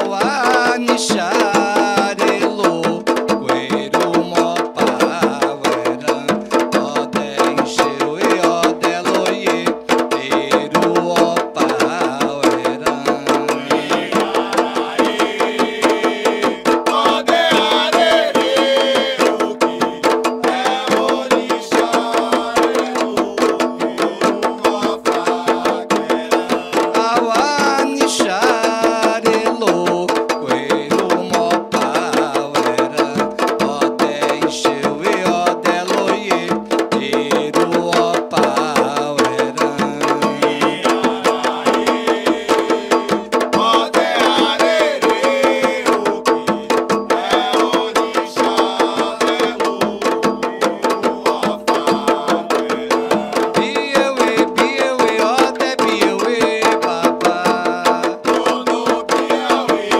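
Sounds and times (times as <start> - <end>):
fast hand drum rhythm: 0.0 - 59.9
person singing: 0.0 - 59.9.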